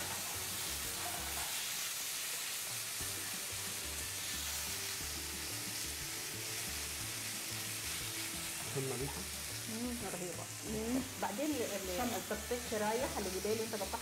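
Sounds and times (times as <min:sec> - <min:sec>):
spatula scraping a pan: 0:00.0 - 0:01.7
meat sizzling in oil: 0:00.0 - 0:14.0.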